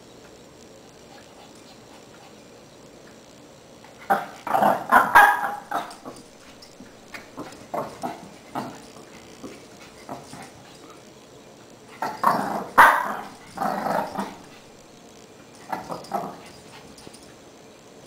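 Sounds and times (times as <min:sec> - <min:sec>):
puppy growling: 0:04.0 - 0:11.0, 0:11.9 - 0:14.7, 0:15.6 - 0:17.2
puppy barking: 0:04.1 - 0:06.1, 0:12.7 - 0:13.4.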